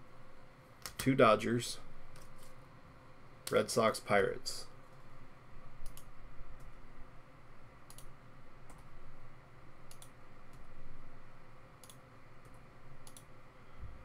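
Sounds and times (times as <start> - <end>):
computer mouse clicks: 0.8 - 1.1, 5.8 - 6.8, 7.8 - 8.1, 8.7 - 8.9, 9.9 - 10.7, 11.8 - 13.3.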